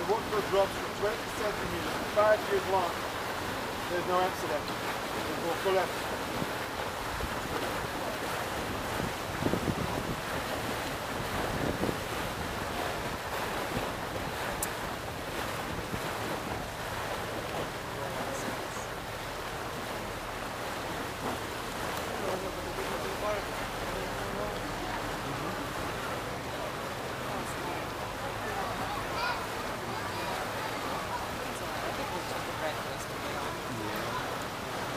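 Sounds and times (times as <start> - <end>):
water washing around a hull: 0.0 - 34.9
wind buffeting the microphone: 5.9 - 18.4.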